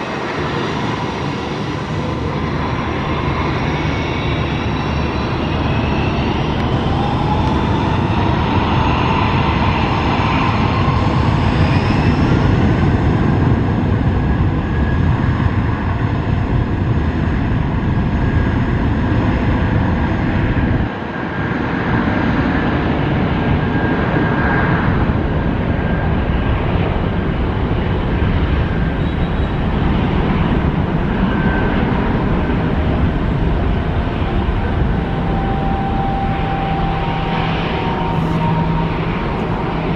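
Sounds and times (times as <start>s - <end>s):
jet engines at takeoff power: 0.0s - 39.9s.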